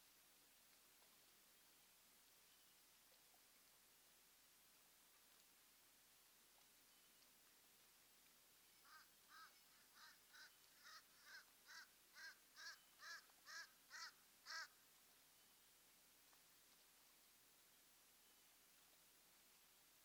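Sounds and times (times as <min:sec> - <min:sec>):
bird harsh calls: 0:08.8 - 0:14.8.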